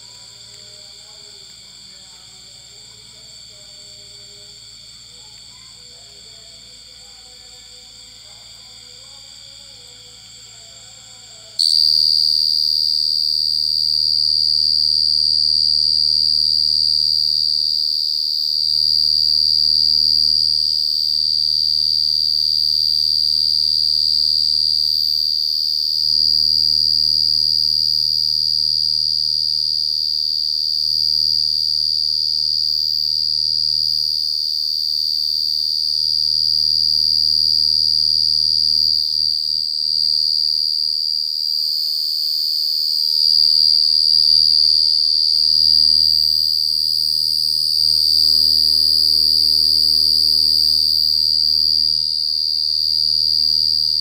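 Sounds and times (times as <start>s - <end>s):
faint low hum: 0.0s - 21.2s
cricket chirping: 0.0s - 54.0s.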